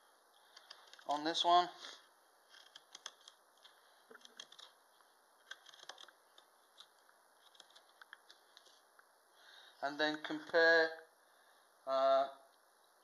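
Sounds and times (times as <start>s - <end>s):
knife carving wood: 4.1s - 4.8s, 5.4s - 8.2s.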